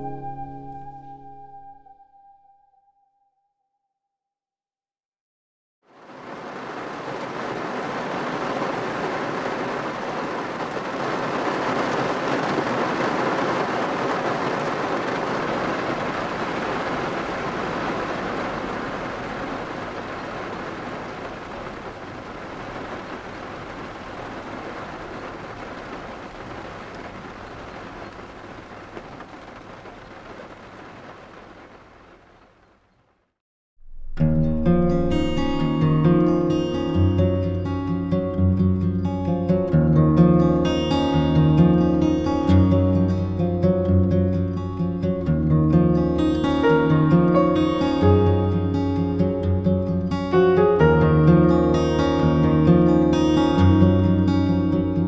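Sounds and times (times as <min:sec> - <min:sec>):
heavy rain falling: 0:05.9 - 0:33.0, 0:40.4 - 0:55.0.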